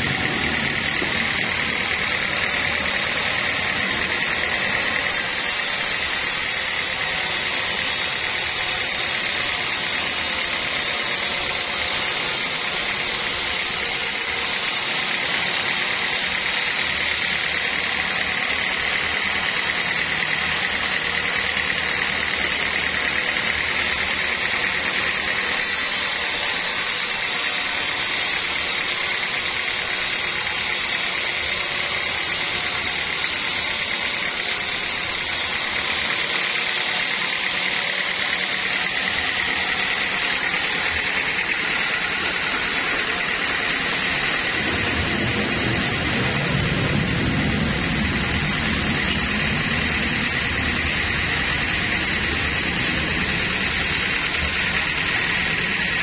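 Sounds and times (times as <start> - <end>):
band saw cutting wood: 0.0 - 56.0.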